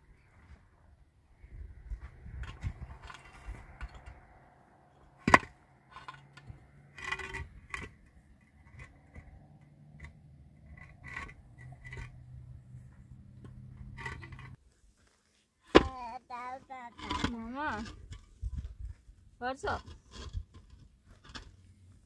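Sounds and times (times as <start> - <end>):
hard objects knocking and scraping: 2.0 - 14.6
clatter: 5.0 - 14.6.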